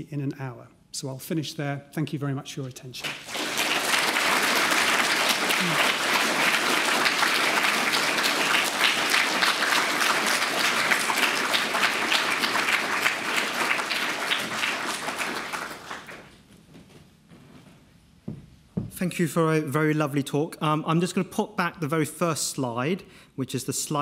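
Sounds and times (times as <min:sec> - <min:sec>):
audience applauding: 0:03.0 - 0:16.3.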